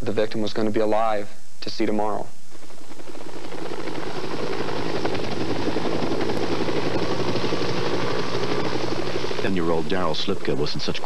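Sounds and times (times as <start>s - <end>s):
helicopter engine hum: 2.7s - 11.0s
helicopter rotor chop: 2.8s - 11.0s.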